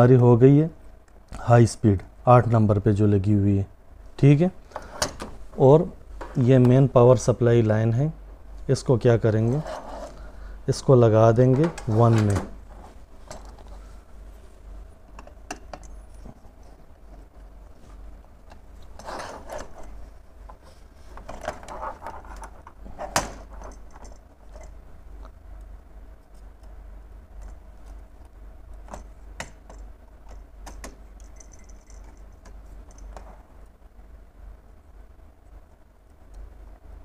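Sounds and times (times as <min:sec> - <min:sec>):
steady low hum: 0:00.0 - 0:37.0
clicks taps and rustling: 0:11.4 - 0:12.6, 0:27.4 - 0:33.7.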